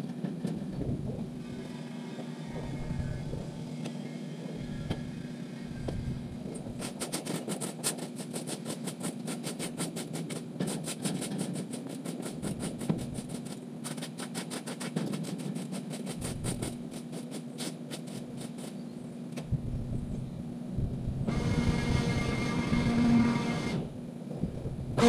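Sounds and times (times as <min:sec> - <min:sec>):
rapid even clicking: 0:06.7 - 0:18.8.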